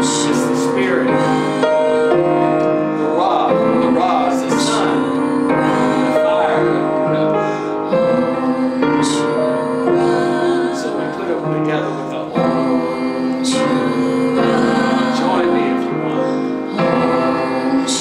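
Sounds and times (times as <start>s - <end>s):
grand piano accompaniment: 0.0s - 18.0s
woman singing: 3.9s - 7.2s, 7.8s - 11.2s, 12.4s - 18.0s.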